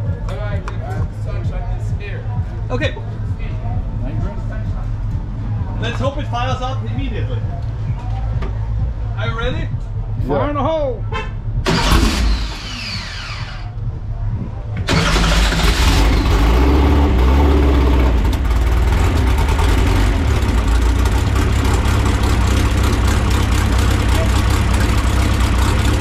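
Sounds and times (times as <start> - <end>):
engine cranking whir: 11.6 - 13.7, 14.8 - 20.7
engine running loud: 14.9 - 26.0.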